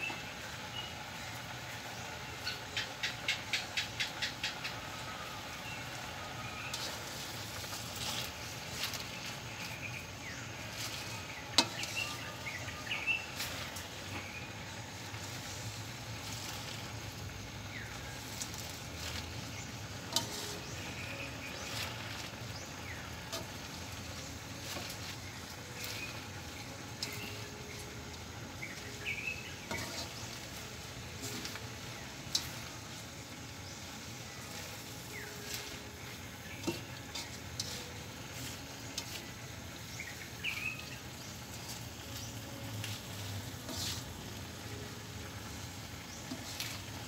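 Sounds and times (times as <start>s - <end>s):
faint sizzle: 0.0s - 47.0s
spatula scraping and knocking pan: 6.7s - 14.4s, 18.0s - 22.3s, 23.2s - 27.9s, 28.7s - 32.8s, 34.4s - 39.4s.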